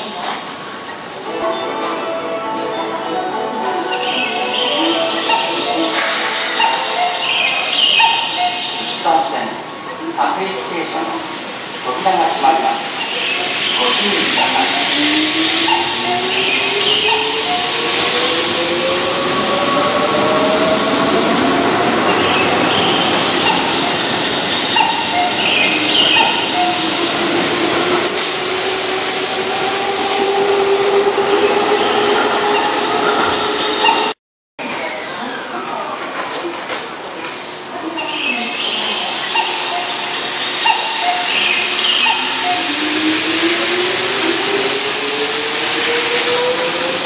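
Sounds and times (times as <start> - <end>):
train wheels on rails: 10.6 - 34.2, 35.9 - 47.0.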